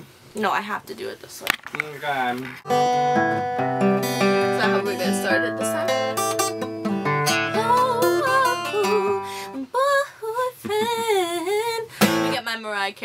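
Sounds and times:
acoustic guitar strumming: 2.6 - 9.6, 12.0 - 12.7
woman singing: 7.5 - 12.8.

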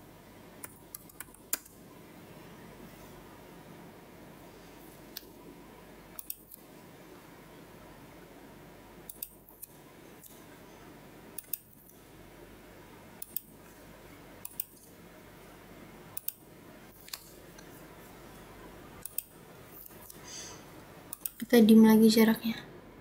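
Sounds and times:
faint steady hiss: 0.0 - 23.0
computer mouse clicks: 0.6 - 1.7, 6.2 - 6.6, 9.1 - 10.4, 11.4 - 12.0, 13.2 - 13.5, 14.4 - 14.8, 16.2 - 16.4, 19.0 - 20.2, 21.1 - 21.4.

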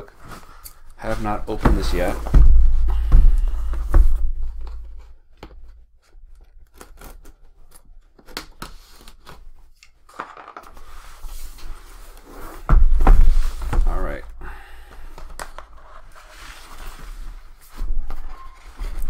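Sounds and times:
knocks on cardboard box: 1.6 - 4.8
cardboard scraping and tearing: 6.6 - 7.8.

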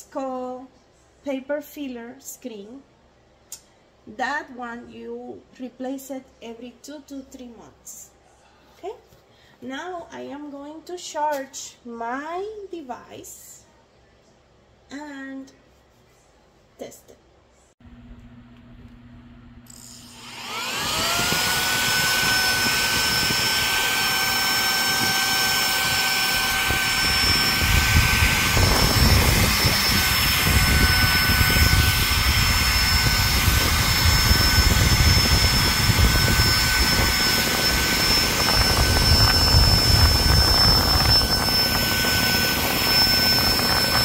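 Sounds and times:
handheld vacuum motor whine: 19.7 - 44.0
rushing air: 24.9 - 44.0.

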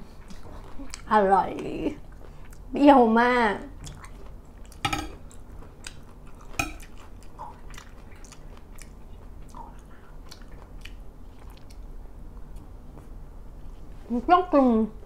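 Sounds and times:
close chewing: 0.0 - 1.1, 3.8 - 11.9
cutlery clicking on plate: 4.8 - 5.2, 6.6 - 6.9.

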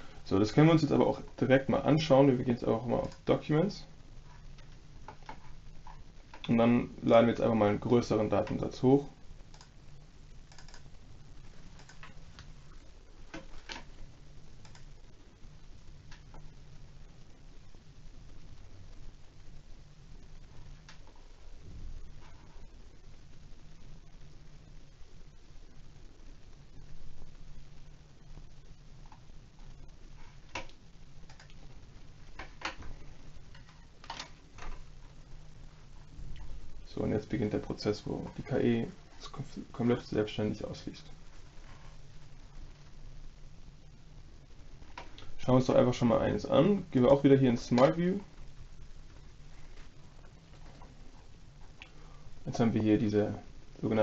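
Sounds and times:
faint clicks and ticks: 0.0 - 6.8, 7.4 - 54.0
low steady hum: 0.0 - 54.0
computer mouse clicks: 3.0 - 3.2, 9.5 - 9.7, 10.5 - 10.9, 11.7 - 12.5, 14.6 - 14.9, 30.5 - 31.6.

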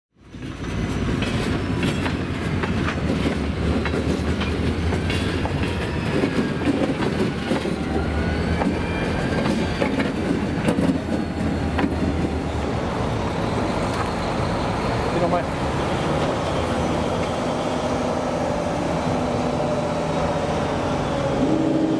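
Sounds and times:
train wheels rumbling on rails: 0.2 - 21.9
clacks over rail joints: 0.3 - 12.4.

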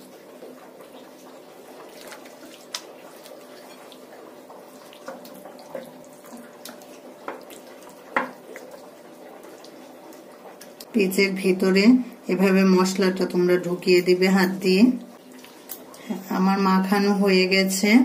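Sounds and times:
hands squelching marinade: 1.6 - 10.8.

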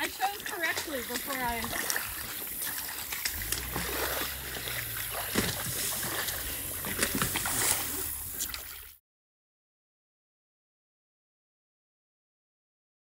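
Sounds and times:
feet splashing through water: 0.0 - 9.0.

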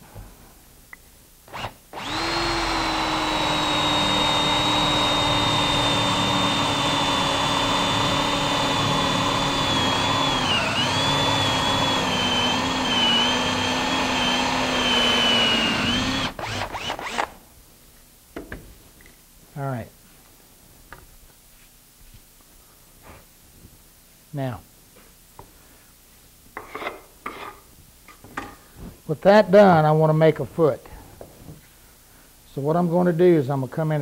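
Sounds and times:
power drill boring into wood: 1.5 - 17.4.

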